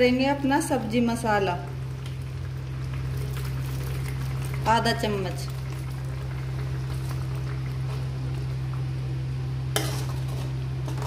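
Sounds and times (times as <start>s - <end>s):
steady low hum: 0.0s - 11.0s
thick gravy bubbling in a pan: 0.6s - 11.0s
spoon stirring in a pan: 9.7s - 11.0s.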